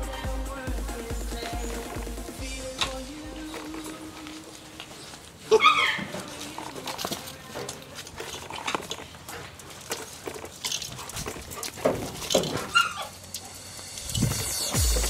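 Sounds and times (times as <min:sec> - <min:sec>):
puppies scuffling: 0:00.0 - 0:13.6
puppy yips: 0:05.5 - 0:06.1, 0:12.6 - 0:13.2.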